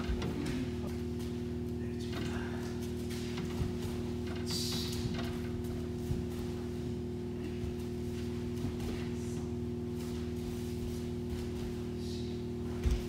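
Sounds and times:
steady low hum: 0:00.0 - 0:13.0
bare feet thudding on mats: 0:05.0 - 0:13.0.

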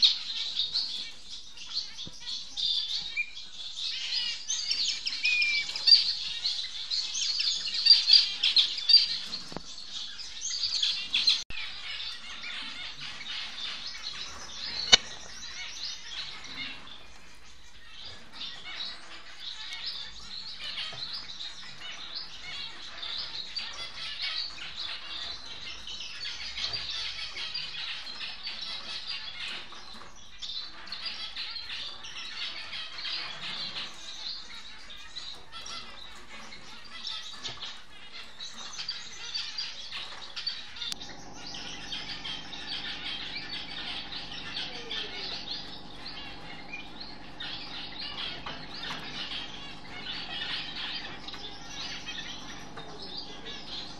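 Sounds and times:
finches chirping: 0:00.0 - 0:53.9
steady low hum: 0:40.8 - 0:53.9.

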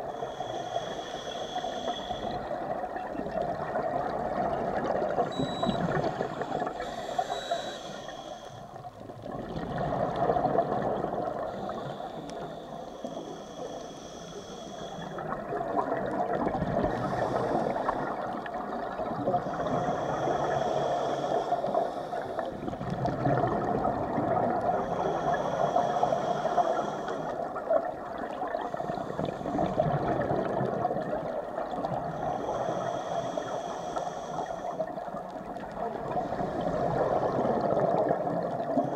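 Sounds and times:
regulator inhale hiss: 0:00.0 - 0:02.6, 0:06.0 - 0:09.0, 0:11.3 - 0:15.5, 0:16.8 - 0:18.6, 0:19.2 - 0:22.6, 0:24.6 - 0:27.7, 0:28.5 - 0:29.9, 0:31.8 - 0:37.3
muffled underwater water noise: 0:00.0 - 0:38.9
exhaled air bubbles: 0:01.8 - 0:13.8, 0:14.4 - 0:38.9.

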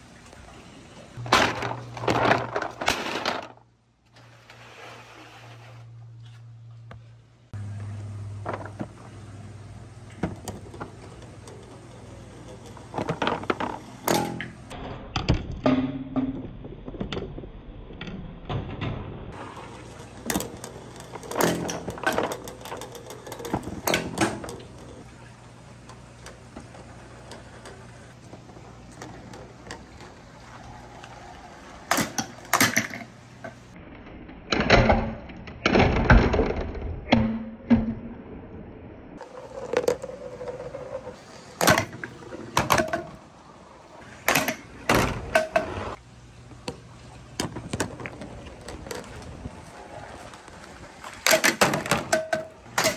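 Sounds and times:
marbles rolling rumble: 0:39.2 - 0:42.6.

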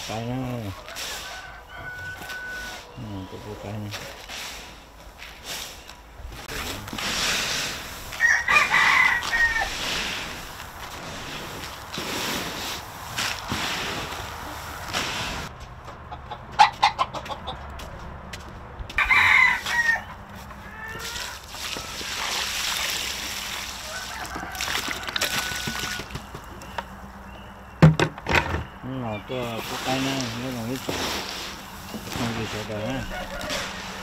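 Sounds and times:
rooster crowing: 0:00.8 - 0:03.0, 0:08.2 - 0:09.8, 0:19.0 - 0:21.4, 0:23.8 - 0:26.2, 0:32.8 - 0:34.0
chickens clucking: 0:13.4 - 0:18.0
sharp knocks: 0:27.8 - 0:28.7.

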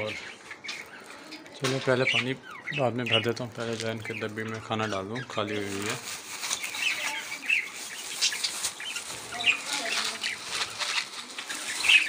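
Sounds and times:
lovebirds chirping: 0:00.0 - 0:12.0.

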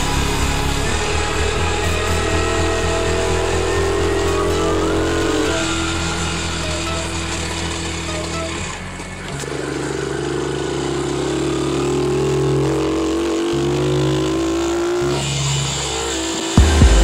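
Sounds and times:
dirt bike engine accelerating: 0:00.0 - 0:17.0
loud low thumps: 0:16.6 - 0:17.0.

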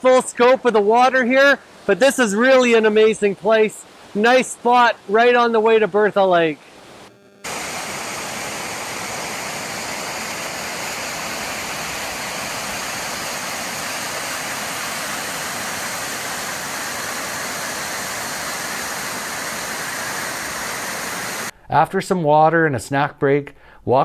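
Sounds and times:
waterfall rushing: 0:07.5 - 0:21.5.

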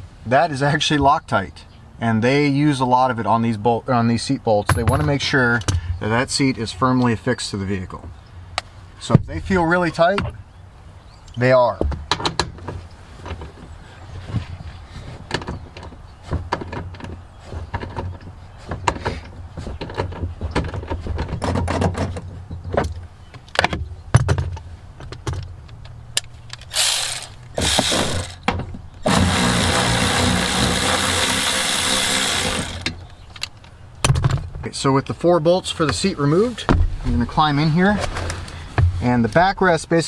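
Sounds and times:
electric ratchet whirring: 0:26.6 - 0:28.4, 0:29.0 - 0:33.0
ratchet clicking: 0:26.6 - 0:28.4.

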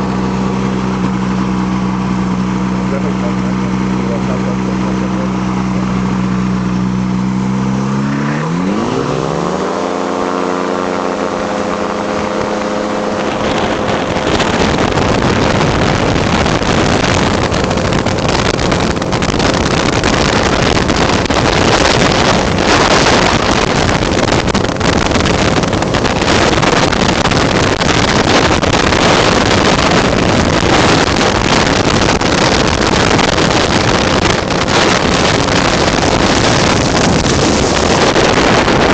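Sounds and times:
microlight engine running: 0:00.0 - 0:38.9
wind buffeting microphone: 0:00.0 - 0:38.9.

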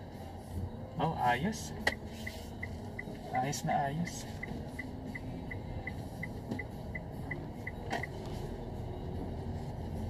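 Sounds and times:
turn-signal ticking: 0:02.6 - 0:08.2.

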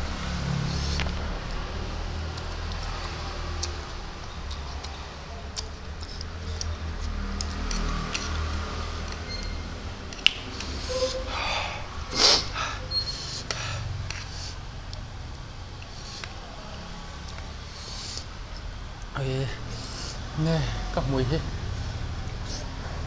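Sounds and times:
steady low hum: 0:00.0 - 0:23.0
breathy burst: 0:10.6 - 0:14.7.

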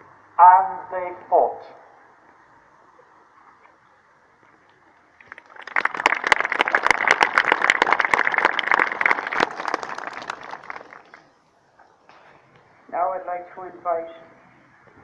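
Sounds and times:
crowd applauding: 0:05.2 - 0:11.4.

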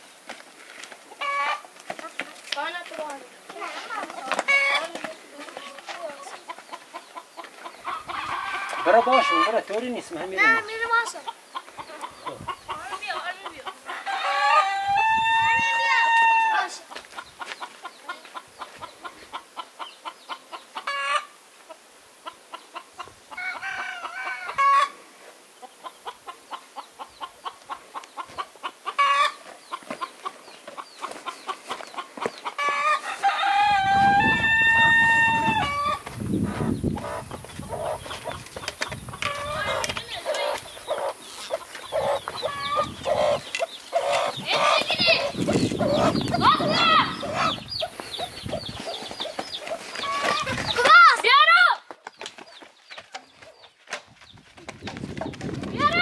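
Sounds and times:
chickens clucking: 0:00.8 - 0:51.4
rooster crowing: 0:13.9 - 0:16.7, 0:32.6 - 0:36.0
chicken squawks: 0:39.3 - 0:47.9.

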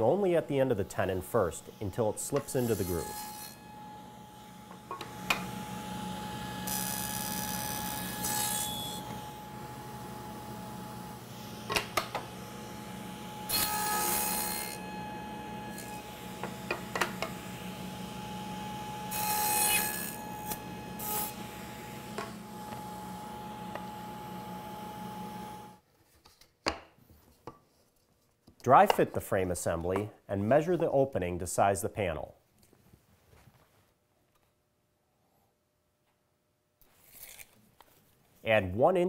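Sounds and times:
table saw cutting wood: 0:00.7 - 0:25.8.

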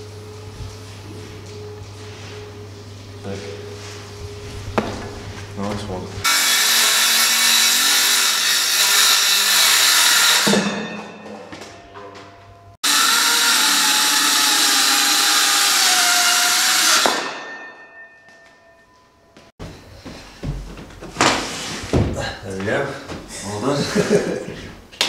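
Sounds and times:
circular saw cutting: 0:06.2 - 0:10.9, 0:12.8 - 0:17.8.

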